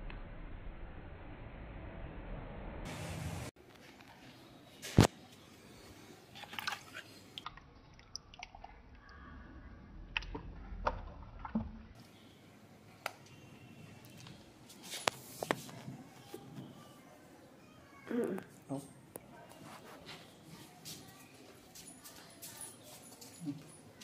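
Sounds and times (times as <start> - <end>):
hand squishing water in bucket: 6.3 - 8.8.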